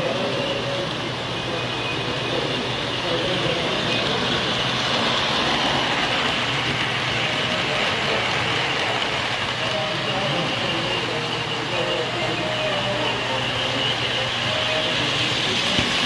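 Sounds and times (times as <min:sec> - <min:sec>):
model train wheels rumbling: 0:00.0 - 0:16.0
murmured voices: 0:00.0 - 0:16.0.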